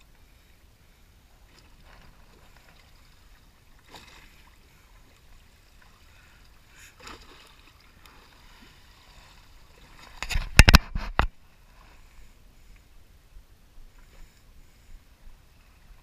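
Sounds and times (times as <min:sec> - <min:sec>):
faint water lapping: 0:00.0 - 0:16.0
knocks and rubs on camera: 0:10.2 - 0:11.3.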